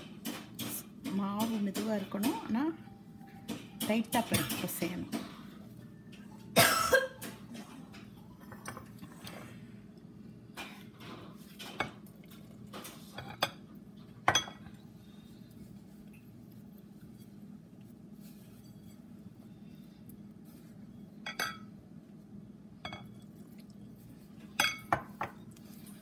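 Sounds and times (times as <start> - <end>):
hand mixing dough in bowl: 13.8 - 22.3, 23.1 - 26.0
clinks against glass bowl: 24.6 - 25.4.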